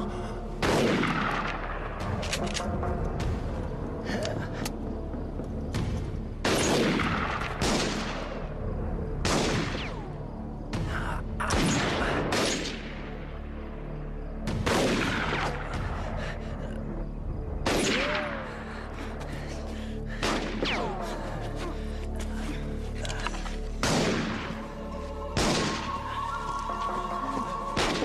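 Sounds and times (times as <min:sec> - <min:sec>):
rifle and revolver shots: 0:00.6 - 0:02.8, 0:06.4 - 0:08.4, 0:11.5 - 0:13.1, 0:14.6 - 0:15.7, 0:17.6 - 0:18.4, 0:23.8 - 0:24.6, 0:25.4 - 0:25.9.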